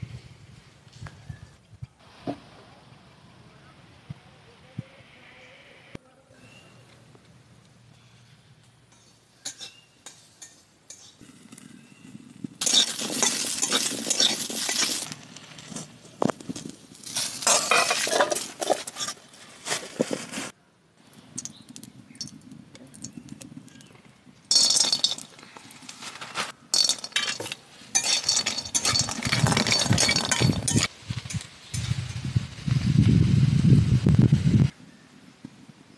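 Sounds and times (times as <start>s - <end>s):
metal spatula scraping a wok: 8.9s - 11.2s, 12.6s - 15.1s, 17.0s - 19.3s.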